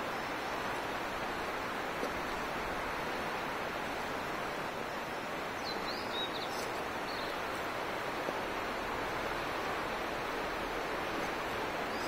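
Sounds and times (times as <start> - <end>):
river water rushing: 0.0 - 12.0
bird chirping: 5.6 - 7.3.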